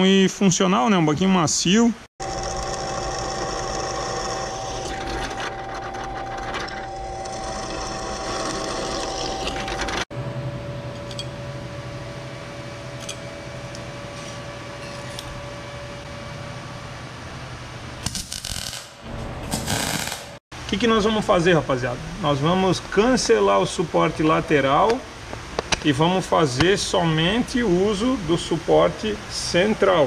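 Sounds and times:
drill press cutting steel: 2.2 - 10.0
machine hum: 2.2 - 25.6.

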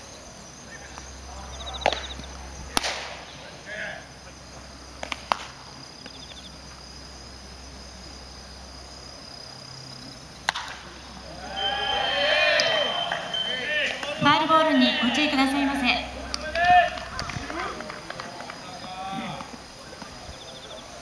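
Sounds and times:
insects chirping in high trills: 0.0 - 21.0
sharp pops: 1.8 - 3.3, 5.0 - 6.3, 10.4 - 10.9
faint shout: 11.2 - 18.0.

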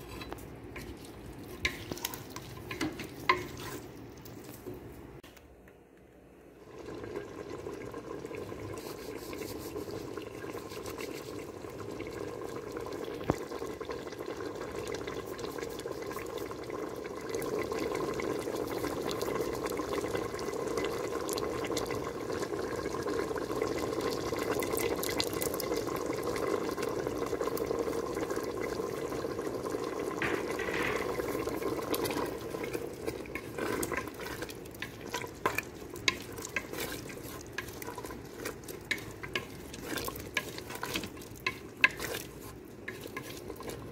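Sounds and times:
wooden spoon scraping a pot: 0.0 - 4.8, 8.4 - 11.6, 30.2 - 43.9
curry bubbling in a pot: 0.0 - 5.0, 6.6 - 43.9.

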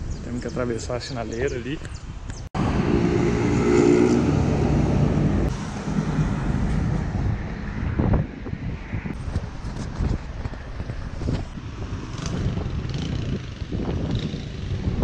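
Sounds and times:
street noise: 0.0 - 15.0
vehicle engine hum: 2.6 - 11.6.

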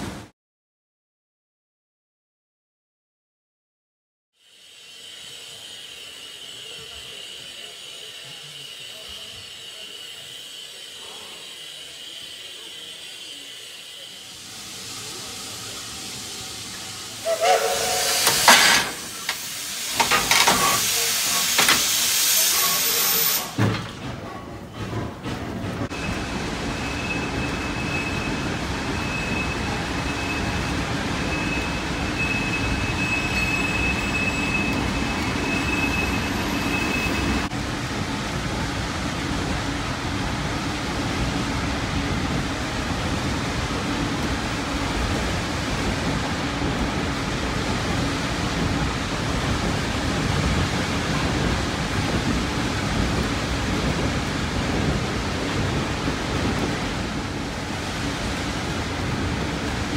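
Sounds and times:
steam locomotive hissing: 4.4 - 59.9
train wheels rumbling on track: 4.7 - 59.9.

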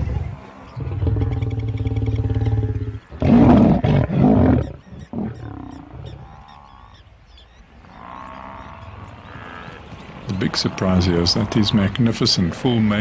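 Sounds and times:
lions snarling: 0.0 - 6.3
lion growling: 0.0 - 6.4.

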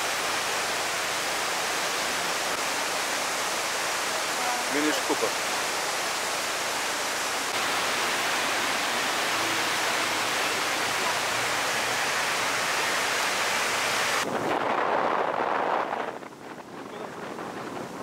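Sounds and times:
river rushing and roaring: 0.0 - 18.0
wind rushing: 14.0 - 18.0.

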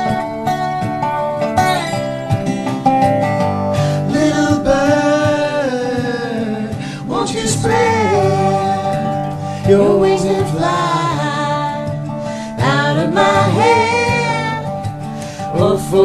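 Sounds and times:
acoustic guitar: 0.0 - 16.0.

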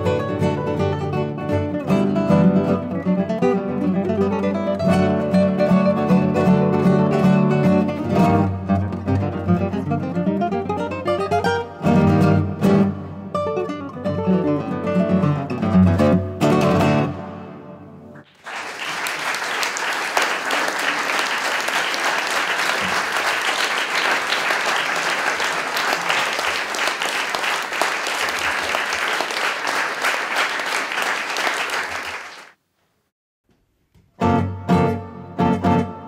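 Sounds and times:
classical guitars playing: 0.0 - 18.2, 34.2 - 36.0
audience applauding: 18.2 - 32.6.

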